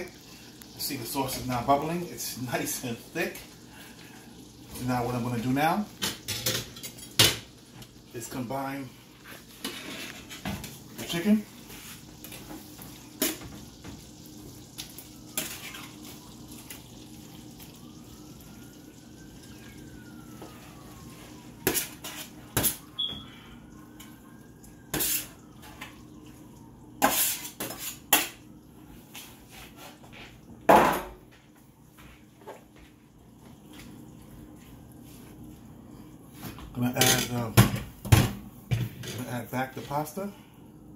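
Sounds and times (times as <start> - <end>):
metal spoon clanking on pans: 6.0 - 7.5.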